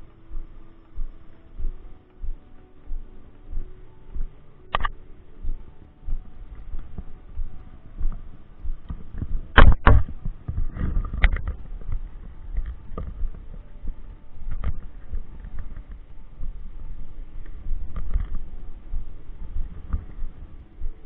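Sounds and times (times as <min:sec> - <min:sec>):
loud thumps: 0:08.9 - 0:12.0.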